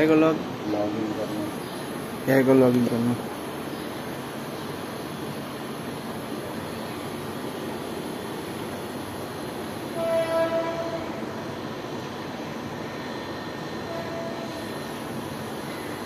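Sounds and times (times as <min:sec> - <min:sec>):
traffic hum: 0:00.0 - 0:16.0
distant horn: 0:09.9 - 0:11.6, 0:13.9 - 0:14.9.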